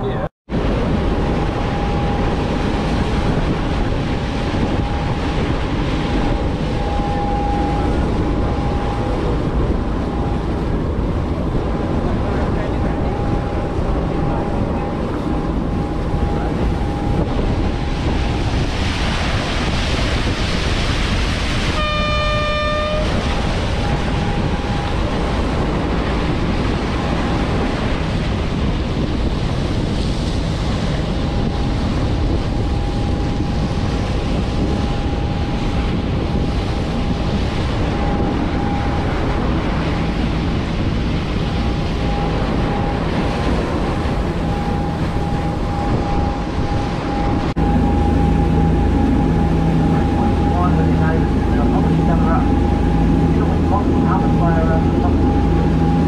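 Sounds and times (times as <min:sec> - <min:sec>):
boat engine drone: 0:00.0 - 0:56.0
water rushing along hull: 0:00.0 - 0:56.0
wind on microphone: 0:00.0 - 0:56.0
faint steady whine: 0:03.6 - 0:19.4, 0:30.6 - 0:56.0
boat horn: 0:04.2 - 0:10.8, 0:12.7 - 0:28.2, 0:34.6 - 0:56.0.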